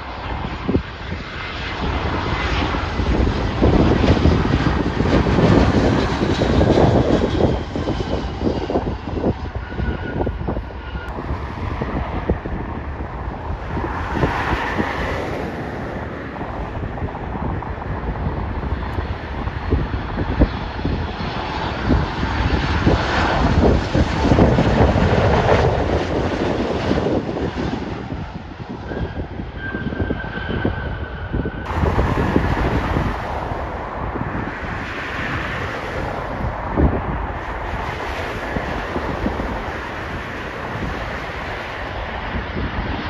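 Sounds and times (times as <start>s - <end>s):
jet airliner passing overhead: 0.0s - 43.0s.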